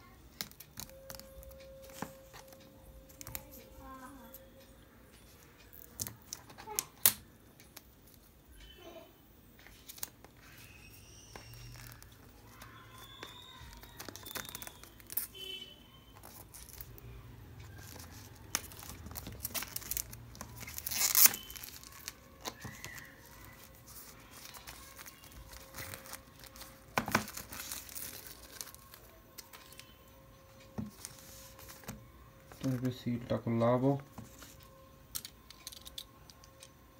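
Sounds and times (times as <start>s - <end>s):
clicks and crackles: 0.3s - 3.6s, 9.6s - 15.4s, 16.2s - 33.0s, 34.0s - 36.9s
plastic packaging crinkling and tearing: 9.8s - 15.6s, 16.2s - 17.0s, 17.6s - 30.0s.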